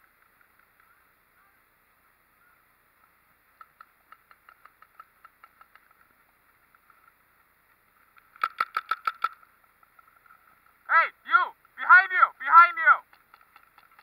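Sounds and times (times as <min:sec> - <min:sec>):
paintball markers firing: 0:08.2 - 0:09.5.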